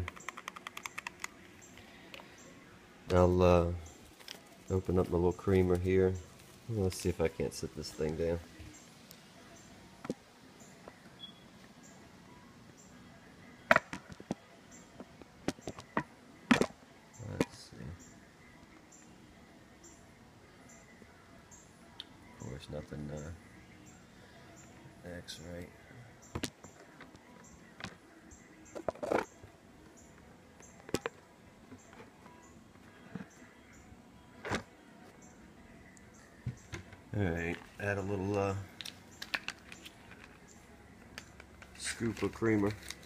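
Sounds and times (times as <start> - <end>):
small items clicking and knocking: 38.8 - 40.4.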